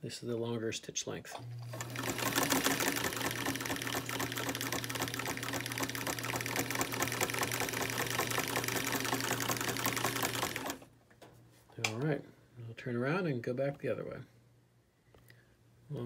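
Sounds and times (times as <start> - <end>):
sewing machine needle clatter: 1.6 - 10.8.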